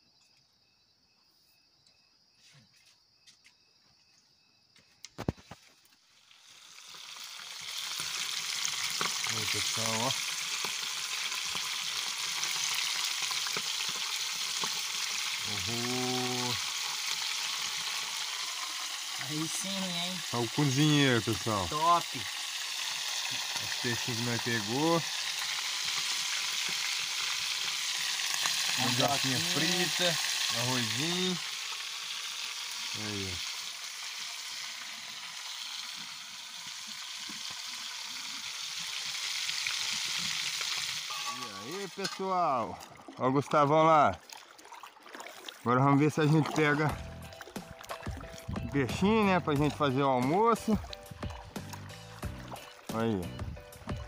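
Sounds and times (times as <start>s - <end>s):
oil popping: 5.1s - 54.0s
fish sizzling in hot oil: 5.2s - 42.7s, 46.2s - 54.0s.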